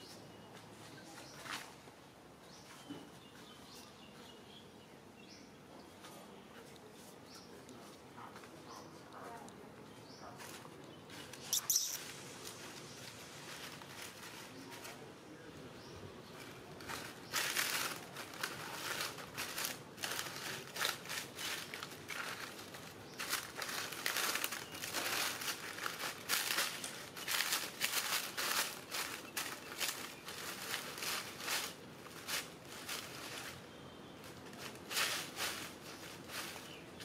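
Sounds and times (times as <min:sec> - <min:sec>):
dry leaves crunching: 0:10.0 - 0:15.1, 0:15.8 - 0:37.0.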